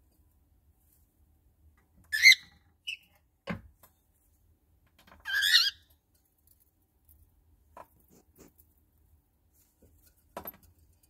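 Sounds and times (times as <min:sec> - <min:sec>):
cockatiel chirping and warbling: 0:02.1 - 0:03.0, 0:05.2 - 0:05.9.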